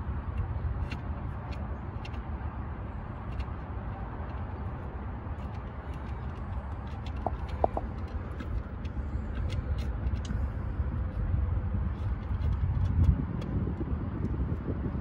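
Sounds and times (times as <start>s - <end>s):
low outdoor rumble: 0.0s - 15.0s
hands clicking and tapping metal: 5.4s - 10.3s.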